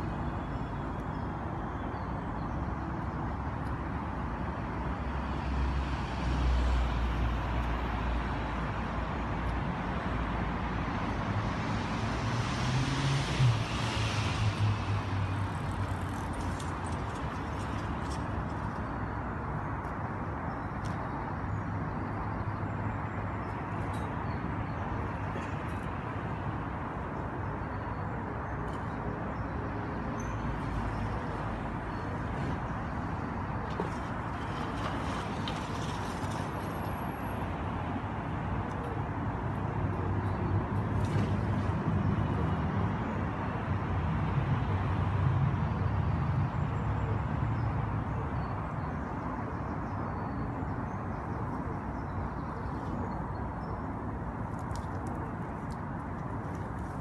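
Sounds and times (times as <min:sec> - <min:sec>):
outdoor background rumble: 0:00.0 - 0:57.0
vehicle passing by: 0:11.2 - 0:17.0.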